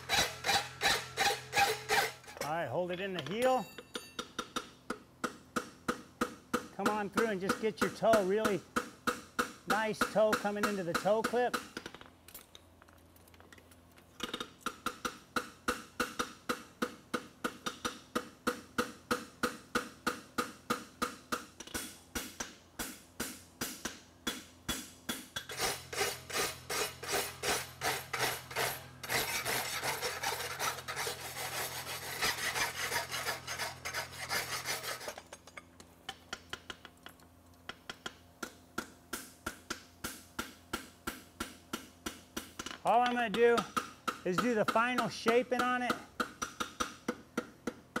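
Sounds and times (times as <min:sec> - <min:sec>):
hammer ringing on anvil: 0:03.4 - 0:04.4.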